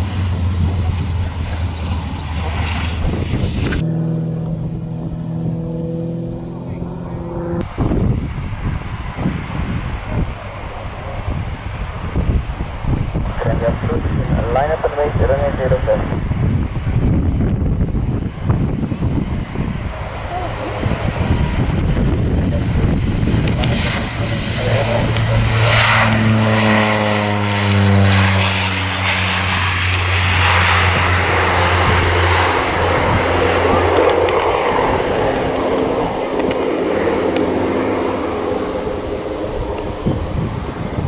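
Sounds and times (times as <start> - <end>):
turboprop aircraft taking off: 0.0 - 41.0.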